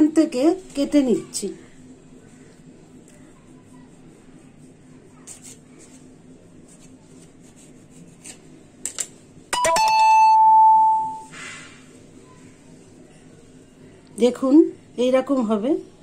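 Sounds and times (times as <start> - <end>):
electronic two-note chime: 9.6 - 11.3.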